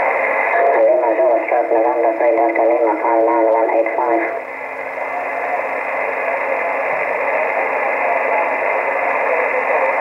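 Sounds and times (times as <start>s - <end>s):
radio static hiss: 0.0s - 10.0s.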